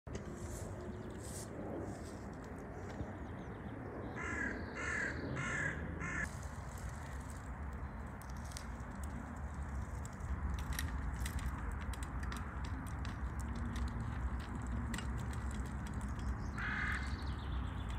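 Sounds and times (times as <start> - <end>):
crow cawing: 4.2 - 6.3, 16.6 - 17.2.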